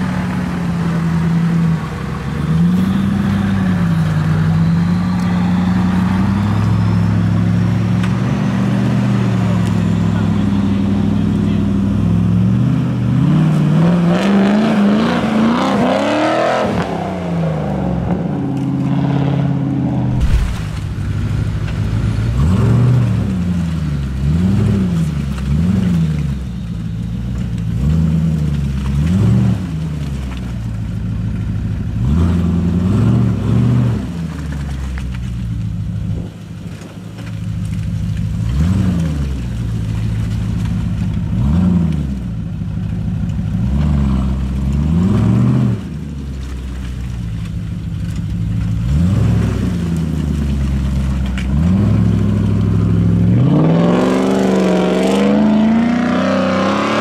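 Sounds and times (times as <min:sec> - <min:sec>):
truck engine revving: 0:00.0 - 0:26.5, 0:48.7 - 0:57.0.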